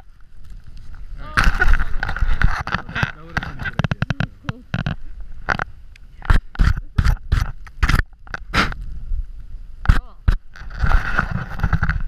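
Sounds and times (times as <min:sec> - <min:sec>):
snow crunching and scraping: 0:10.6 - 0:12.0.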